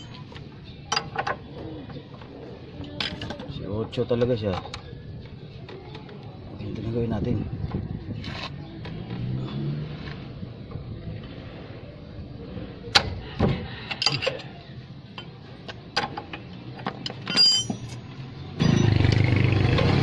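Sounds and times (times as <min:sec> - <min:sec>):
wrench clinking against metal nut: 0:17.0 - 0:18.0.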